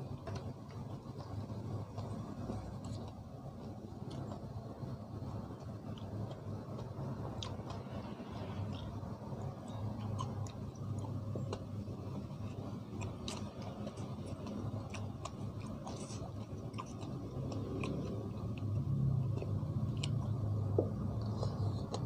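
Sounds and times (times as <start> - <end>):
man chewing and lip smacking: 0.1 - 22.0.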